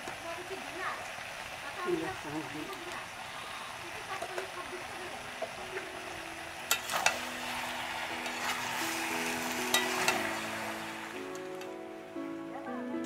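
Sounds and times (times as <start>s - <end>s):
vegetables sizzling in a pan: 0.0s - 12.2s
soft background music: 5.7s - 13.0s
metal spatula scraping a pan: 6.7s - 11.7s.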